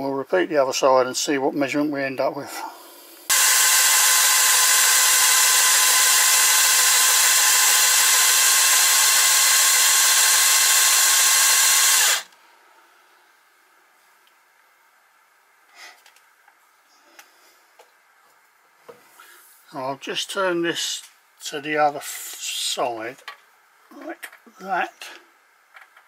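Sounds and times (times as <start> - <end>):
drill whine with hiss: 3.3 - 12.3.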